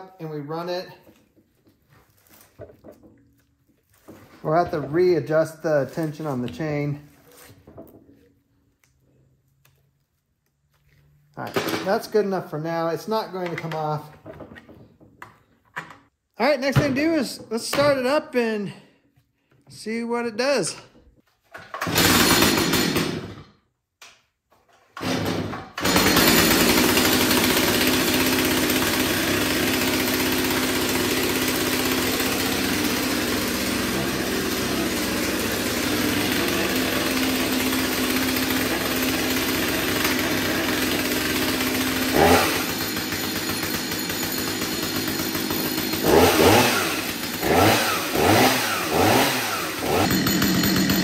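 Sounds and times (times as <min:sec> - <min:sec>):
chainsaw pull-start: 0:04.1 - 0:07.6, 0:21.6 - 0:23.5, 0:24.8 - 0:51.0
chainsaw idling: 0:21.8 - 0:23.4, 0:25.0 - 0:51.0
chainsaw revving: 0:21.8 - 0:23.4, 0:25.0 - 0:51.0.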